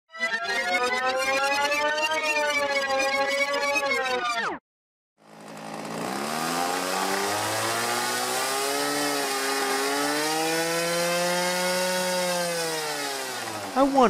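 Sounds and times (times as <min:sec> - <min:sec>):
model airplane engine running: 0:05.2 - 0:14.0.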